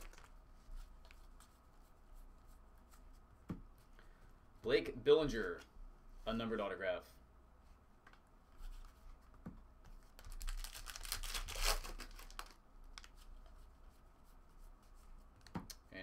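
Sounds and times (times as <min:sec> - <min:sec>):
wrappers crinkling and tearing: 0:00.0 - 0:00.3, 0:10.2 - 0:12.6
cards rustling and clicking: 0:00.0 - 0:01.5.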